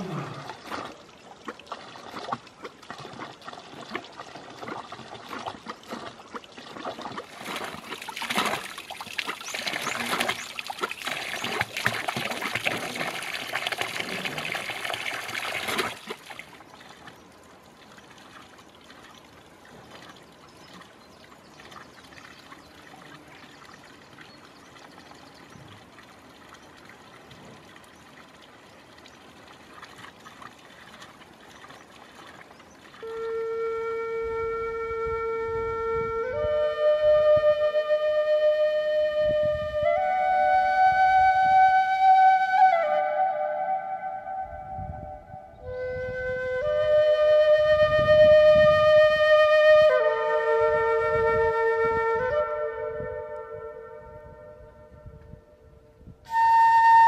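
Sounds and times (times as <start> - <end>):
water splashing into trough: 0.0 - 17.1.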